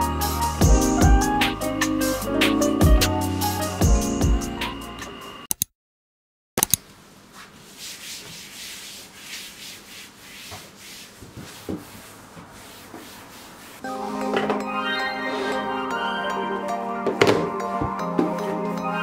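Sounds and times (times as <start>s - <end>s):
background music: 0.0s - 5.3s, 13.8s - 19.0s
cloth wiping a desktop: 7.2s - 13.9s.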